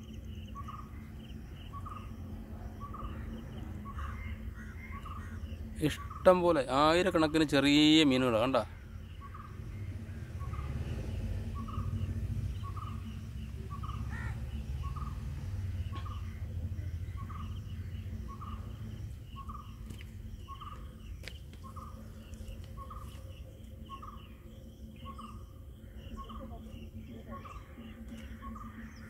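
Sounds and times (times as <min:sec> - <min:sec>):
low rumble: 0:08.7 - 0:29.0.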